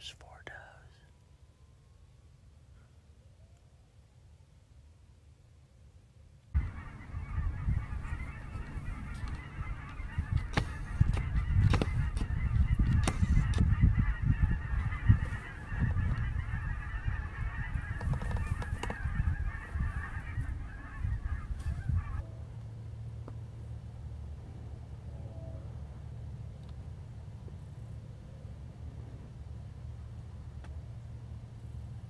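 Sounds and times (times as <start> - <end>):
geese honking in flight: 6.6 - 22.3
low uneven rumble: 6.6 - 32.0.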